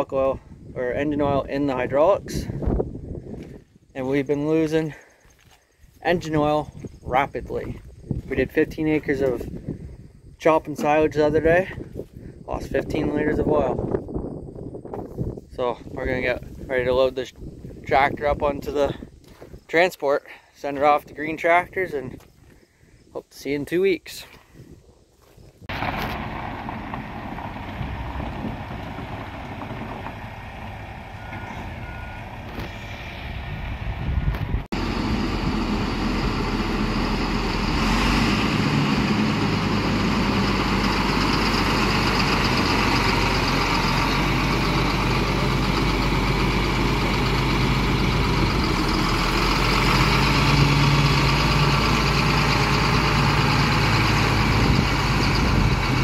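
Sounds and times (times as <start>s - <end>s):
heavy diesel engines running: 25.7s - 56.0s.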